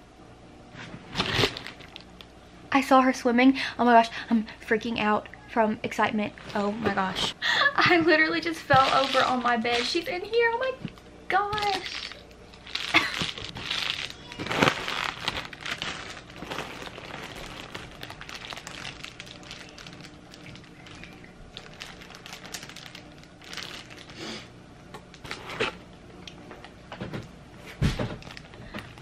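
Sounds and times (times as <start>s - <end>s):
foil insulation crinkling: 1.1s - 2.2s, 8.0s - 10.5s, 11.4s - 24.4s, 28.2s - 29.0s.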